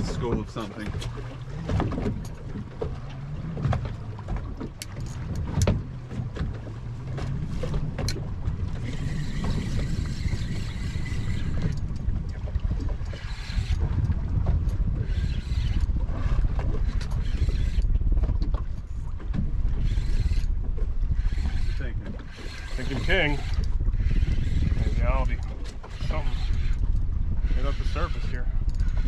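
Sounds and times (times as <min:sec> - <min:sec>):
boat engine rumble: 0:00.0 - 0:29.0
wind on microphone: 0:00.0 - 0:29.0
rod and reel clicks: 0:03.6 - 0:29.0
fishing reel whirring: 0:07.6 - 0:18.0, 0:19.7 - 0:29.0.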